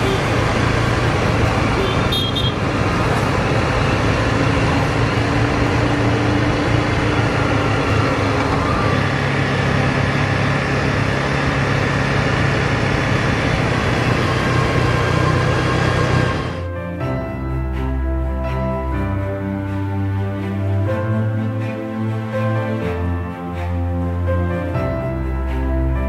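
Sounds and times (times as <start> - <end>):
motorcycle engine cruising: 0.0 - 16.7
wind rush and road noise: 0.0 - 16.7.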